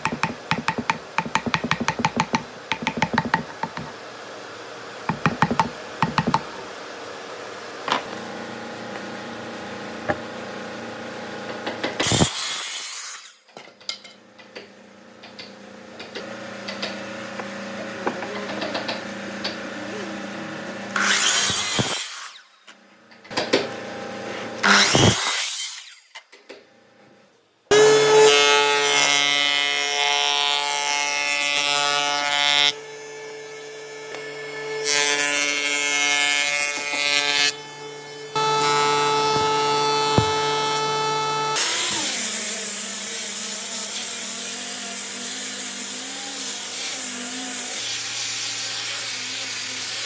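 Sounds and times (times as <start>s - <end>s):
chisel tapping wood: 0.0s - 3.9s, 5.1s - 6.5s
electric miter saw cutting boards: 0.0s - 50.0s.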